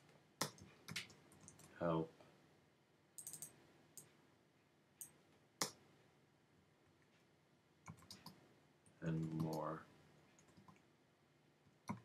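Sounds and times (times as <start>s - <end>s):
computer keyboard keys clicking: 0.4s - 1.7s, 3.2s - 3.5s, 7.8s - 8.4s.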